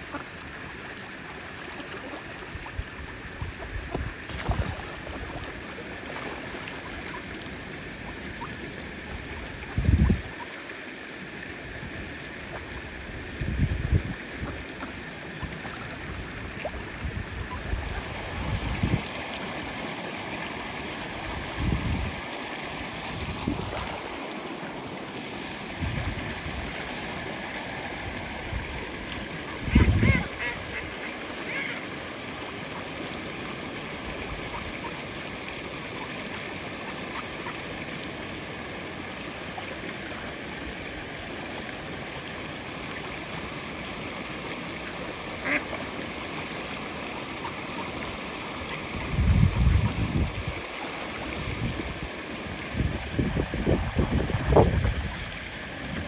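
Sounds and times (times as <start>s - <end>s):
fast-flowing water rushing: 0.0s - 56.0s
ducks quacking: 29.5s - 31.8s, 45.4s - 45.8s.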